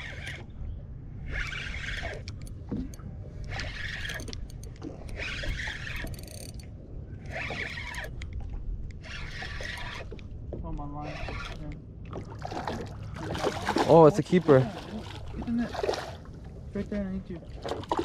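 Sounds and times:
spinning reel cranking: 0:01.3 - 0:02.4, 0:03.5 - 0:06.6, 0:07.3 - 0:08.1.

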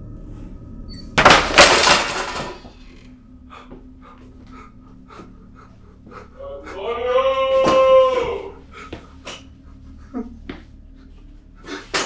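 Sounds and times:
low steady hum: 0:00.0 - 0:12.0
loud crash: 0:01.2 - 0:03.0.

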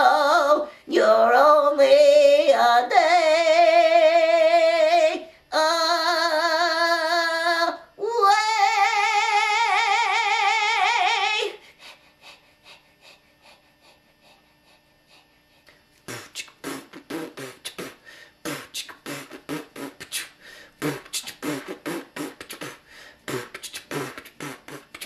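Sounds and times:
beatboxing: 0:16.0 - 0:25.0.

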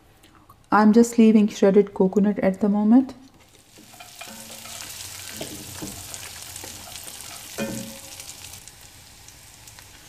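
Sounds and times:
spatula scraping pan: 0:03.4 - 0:08.6
nuts sizzling in butter: 0:03.4 - 0:10.0.

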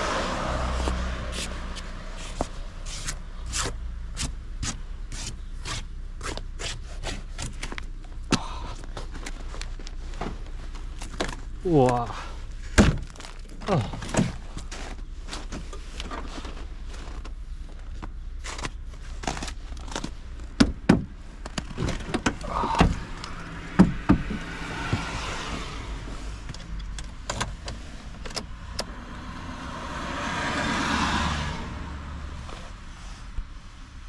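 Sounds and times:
rustles and knocks climbing in: 0:00.7 - 0:28.9
heavy thuds: 0:20.5 - 0:25.7.

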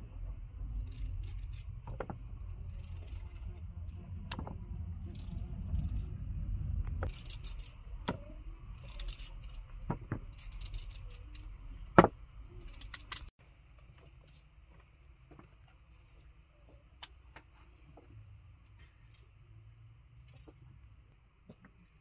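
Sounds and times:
low rumble: 0:00.0 - 0:13.3.

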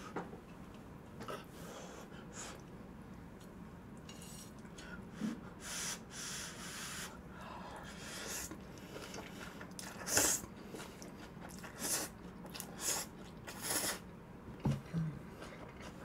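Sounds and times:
chewing: 0:08.5 - 0:13.9.

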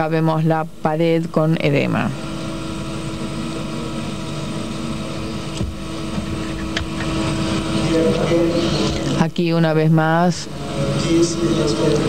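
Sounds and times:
background hum with hiss: 0:00.0 - 0:12.0.

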